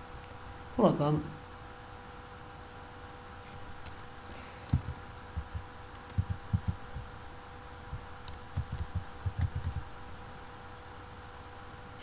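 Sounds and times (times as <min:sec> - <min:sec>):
faint electrical hum: 0:00.0 - 0:12.0
keyboard keystrokes thumping: 0:04.7 - 0:07.1, 0:07.9 - 0:09.9.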